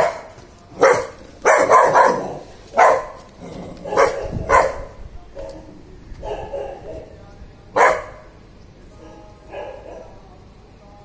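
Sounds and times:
dog barking: 0.0 - 7.1, 7.8 - 8.3, 9.5 - 10.2.

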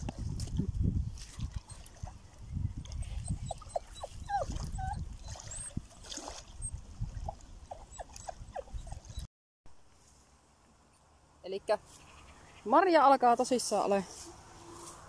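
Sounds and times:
wind rumble on microphone: 0.0 - 9.3
dog whimpering: 3.2 - 5.7, 7.7 - 9.3.

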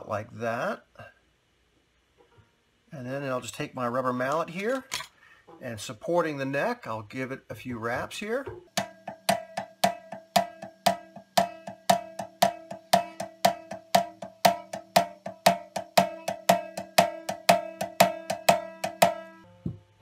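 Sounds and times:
rubber mallet tapping: 8.5 - 19.8
banjo ringing tone: 8.8 - 19.5.

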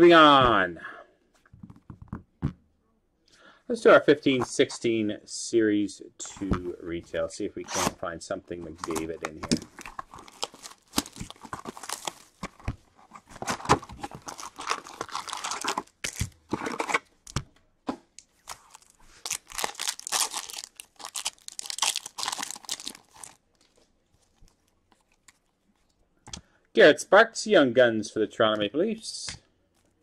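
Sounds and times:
card packaging tearing and crinkling: 8.8 - 17.1, 18.4 - 23.6.

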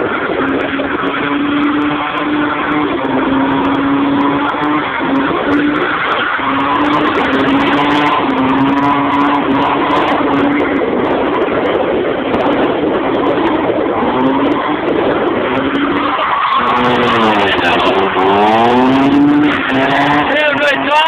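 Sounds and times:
car engine at high revs: 0.0 - 21.0
tyres squealing: 15.5 - 21.0.

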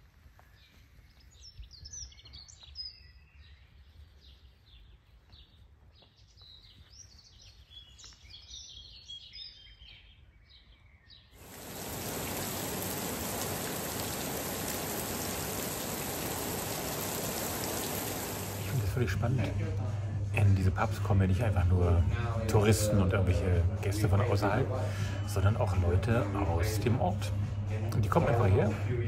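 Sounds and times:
small birds chirping: 0.3 - 18.8
heavy rain hissing: 11.4 - 19.0.

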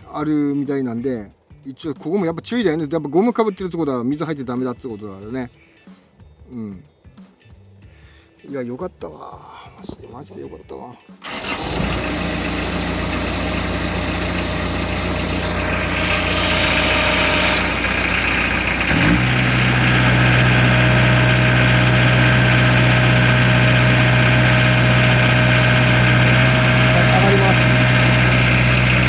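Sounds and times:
diesel engine idling: 11.2 - 29.0.

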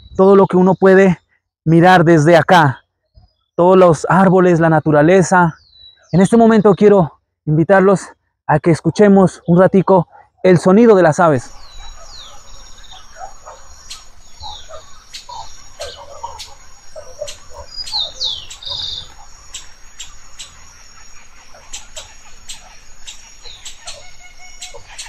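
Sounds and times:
wild birds calling: 0.0 - 25.0
steady high-pitched drone: 11.5 - 25.0.

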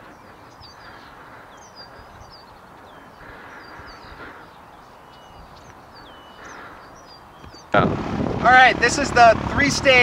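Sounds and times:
songbirds chirping and whistling: 0.0 - 7.8.

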